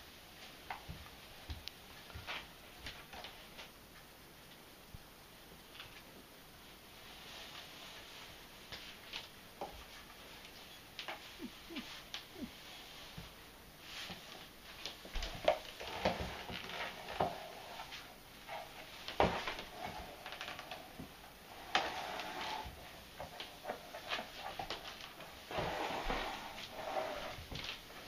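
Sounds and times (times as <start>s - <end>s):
broom scraping wooden floor: 6.9s - 9.2s, 9.8s - 28.0s.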